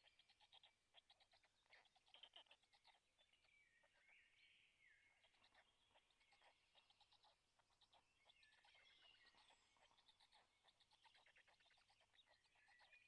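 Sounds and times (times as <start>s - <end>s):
songbirds singing: 0.0s - 13.0s.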